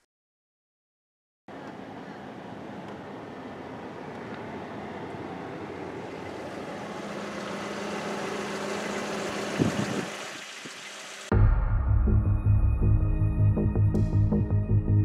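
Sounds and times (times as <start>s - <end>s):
motor vehicle rumble: 1.5s - 10.9s.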